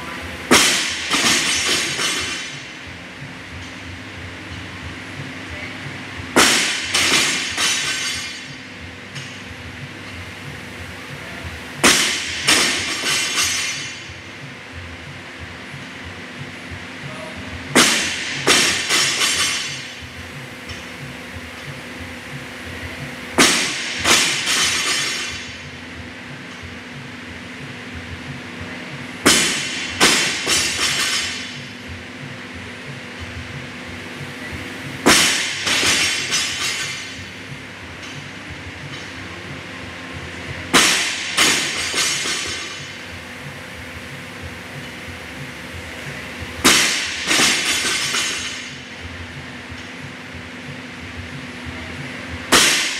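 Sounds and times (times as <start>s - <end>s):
barbell dropping and bouncing: 0.5s - 2.8s, 6.4s - 9.4s, 11.8s - 14.2s, 17.8s - 20.1s, 23.4s - 25.6s, 29.2s - 31.8s, 35.0s - 37.3s, 40.7s - 43.1s, 46.6s - 48.8s.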